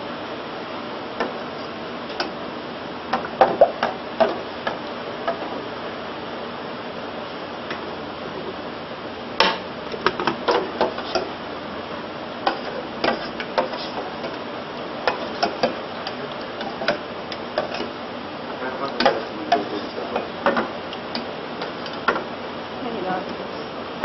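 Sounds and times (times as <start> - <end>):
ladle scraping saucepan: 12.5 - 14.4, 15.1 - 15.8.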